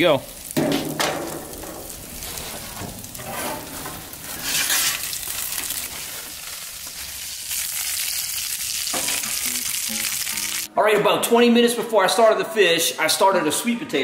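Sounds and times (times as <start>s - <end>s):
fish fillets sizzling: 0.0s - 10.7s.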